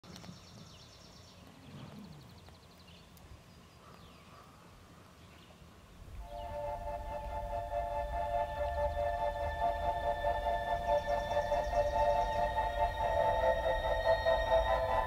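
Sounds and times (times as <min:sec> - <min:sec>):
songbird trill: 0:00.0 - 0:15.0
short downward chirps: 0:06.2 - 0:15.0.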